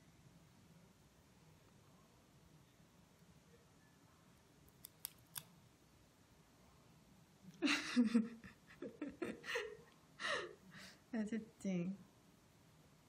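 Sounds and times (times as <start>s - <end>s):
nail clippers snipping: 4.8s - 5.5s.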